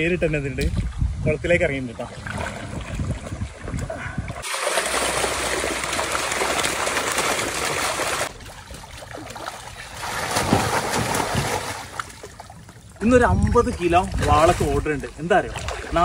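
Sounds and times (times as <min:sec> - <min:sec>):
fish thrashing and splashing: 0:02.2 - 0:12.9.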